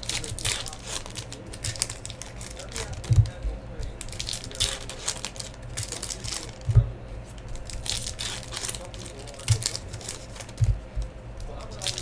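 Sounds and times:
card pack wrappers crinkling and tearing: 0.0s - 3.4s, 4.0s - 6.7s, 7.4s - 10.7s, 11.4s - 12.0s
dull thumps: 10.5s - 11.2s.

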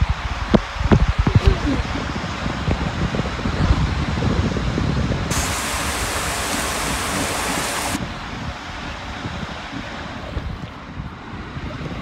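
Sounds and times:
water rushing down water slide: 5.3s - 8.3s.

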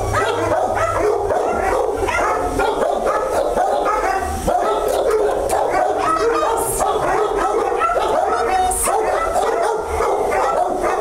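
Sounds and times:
puppies yipping and whimpering: 0.0s - 11.0s.

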